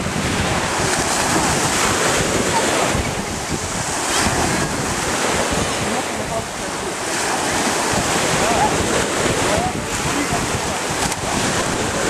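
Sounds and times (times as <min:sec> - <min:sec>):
sea waves splashing: 0:00.0 - 0:12.0
wind buffeting microphone: 0:00.0 - 0:12.0.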